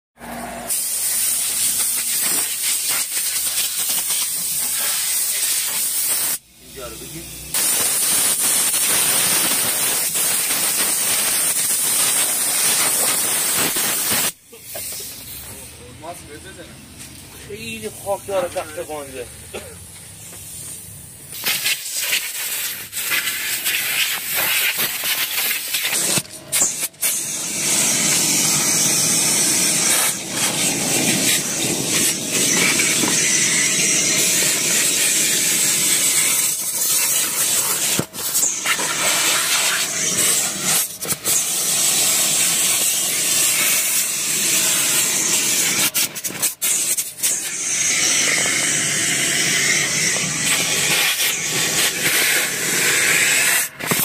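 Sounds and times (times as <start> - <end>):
air cleaning tool hissing: 0.7 - 15.9, 17.6 - 54.0.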